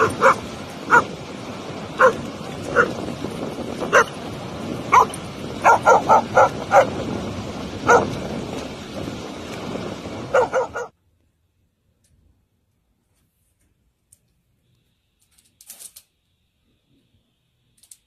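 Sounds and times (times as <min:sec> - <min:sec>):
dog barking: 0:00.0 - 0:01.1, 0:02.0 - 0:03.0, 0:03.9 - 0:04.2, 0:04.9 - 0:07.0, 0:07.8 - 0:08.2, 0:10.3 - 0:10.9
steady rushing background: 0:00.0 - 0:10.9.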